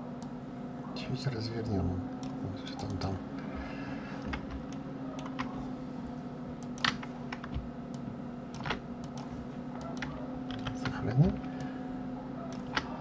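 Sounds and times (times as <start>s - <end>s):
low steady hum: 0.0s - 13.0s
keyboard and mouse clicks: 4.2s - 5.6s, 6.6s - 11.7s, 12.5s - 13.0s.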